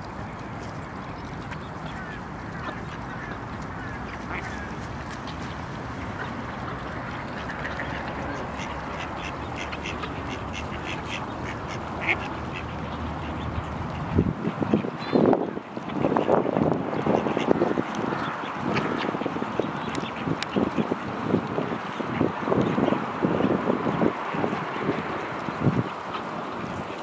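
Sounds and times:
ducks quacking: 0:01.5 - 0:21.1.

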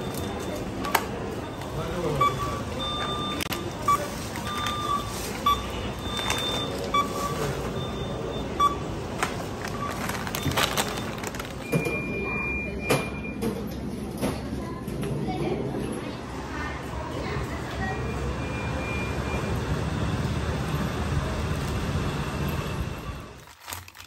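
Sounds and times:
barcode scanner beeping: 0:00.0 - 0:13.5
store noise: 0:00.0 - 0:24.0.

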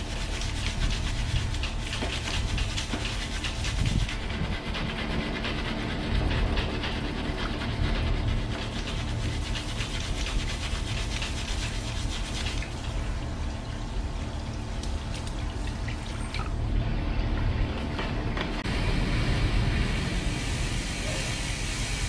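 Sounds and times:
brush scrubbing bicycle chain: 0:00.0 - 0:14.3
low rumble: 0:16.4 - 0:22.0.

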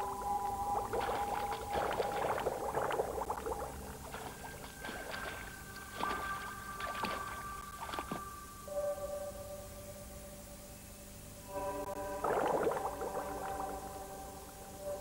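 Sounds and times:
water splashing and gurgling: 0:00.0 - 0:08.3, 0:12.2 - 0:14.2
soft held music tones: 0:00.0 - 0:15.0.

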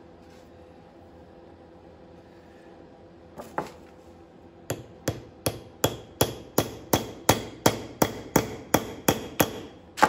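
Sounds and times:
hammer striking steel punch: 0:04.7 - 0:10.0.

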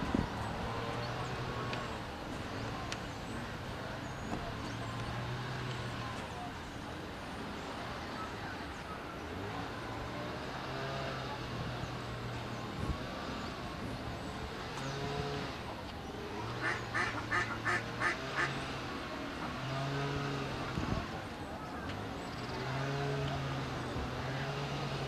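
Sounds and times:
duck quacking: 0:16.6 - 0:18.5.

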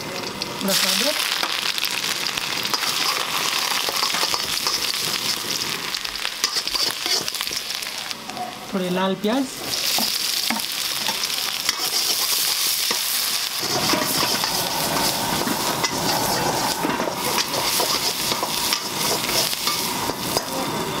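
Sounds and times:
onions sizzling in hot oil: 0:00.0 - 0:21.0
metal spatula scraping a wok: 0:02.7 - 0:05.6, 0:06.4 - 0:07.4, 0:10.0 - 0:20.6.

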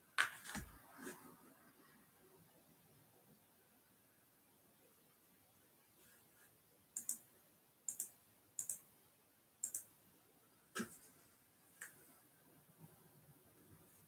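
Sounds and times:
computer mouse clicks: 0:07.0 - 0:07.3, 0:07.9 - 0:08.8, 0:09.6 - 0:09.9.

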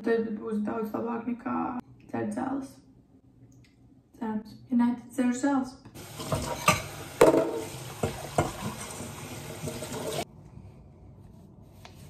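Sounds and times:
tap running into sink: 0:06.1 - 0:10.2.

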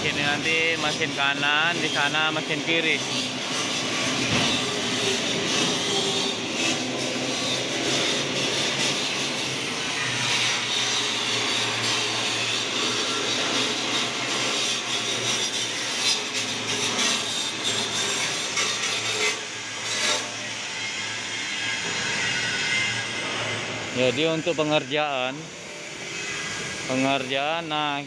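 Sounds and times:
welding hissing and crackling: 0:00.0 - 0:22.0.

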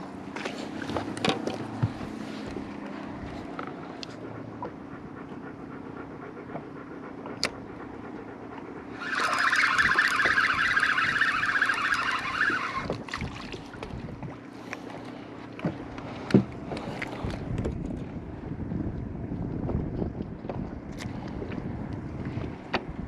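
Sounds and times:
fishing reel whirring: 0:08.9 - 0:13.0.

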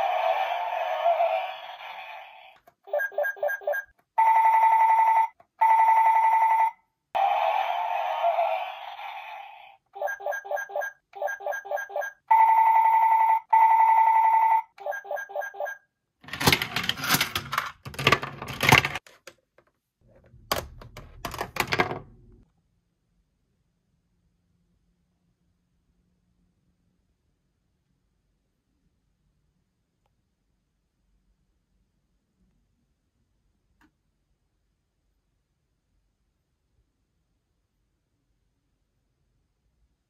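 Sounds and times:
toy trilling beeps: 0:02.9 - 0:07.4, 0:10.0 - 0:15.8
clattering: 0:16.3 - 0:19.0.

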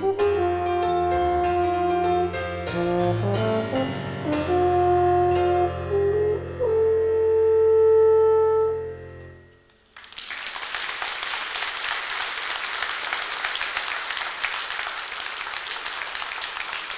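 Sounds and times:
audience applause: 0:09.9 - 0:16.9.

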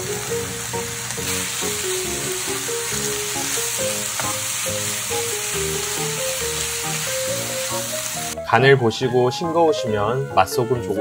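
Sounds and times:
food sizzling in a frying pan: 0:00.0 - 0:08.4
light background music: 0:00.0 - 0:11.0.

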